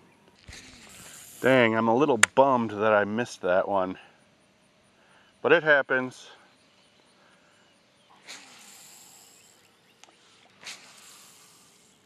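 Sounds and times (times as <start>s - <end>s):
line running off reel: 0.4s - 1.8s, 8.2s - 12.0s
fishing rod swishing: 10.6s - 11.6s.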